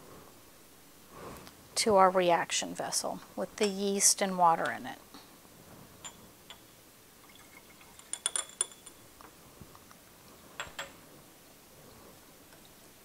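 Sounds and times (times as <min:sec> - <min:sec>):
glassware clinking: 0:06.0 - 0:09.1.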